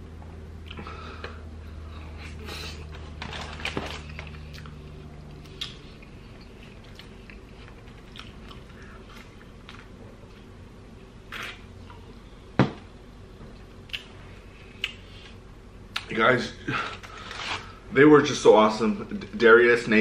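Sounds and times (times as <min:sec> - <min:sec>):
low background hum: 0:00.0 - 0:20.0
chewing and biting food: 0:03.6 - 0:09.9
wet mouth sounds: 0:11.3 - 0:12.0.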